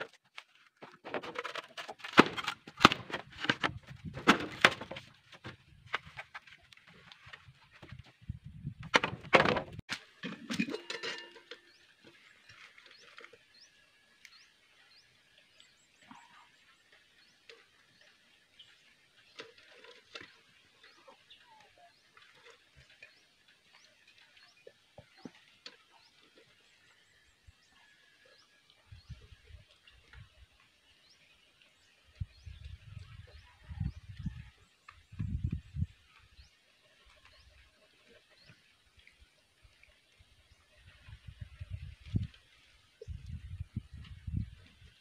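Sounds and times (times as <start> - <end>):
bamboo poles knocking: 0.8 - 6.6, 8.8 - 9.8.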